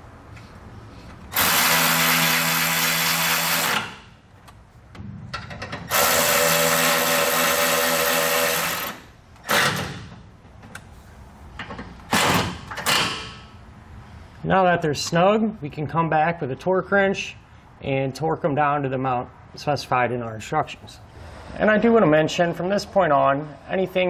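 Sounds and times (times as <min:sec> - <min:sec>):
electric ratchet driving screws: 0:01.3 - 0:04.1, 0:05.9 - 0:10.2.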